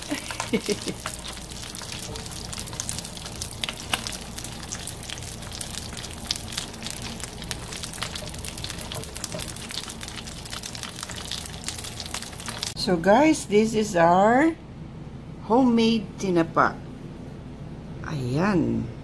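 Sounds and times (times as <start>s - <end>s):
crackles and pops of frying: 0.0s - 12.8s
fish sizzling in a pan: 0.0s - 12.8s.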